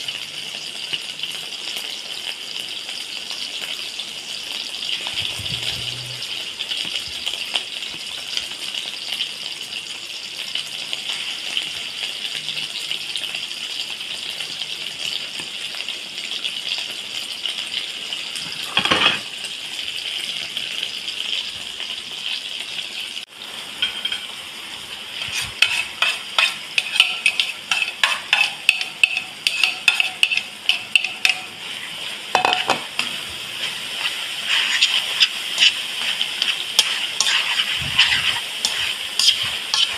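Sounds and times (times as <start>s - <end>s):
meatballs sizzling in oil: 0.0s - 39.9s
metal spatula scraping wok: 5.0s - 6.4s, 23.8s - 24.3s, 25.1s - 39.9s.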